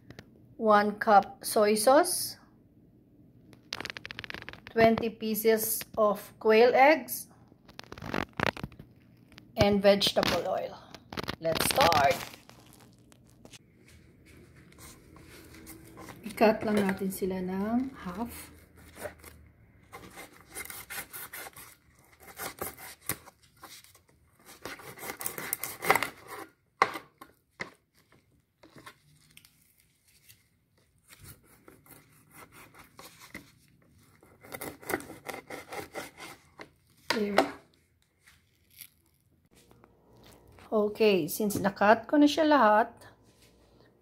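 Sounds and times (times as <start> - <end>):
knife sawing through chicken: 34.5 - 36.5.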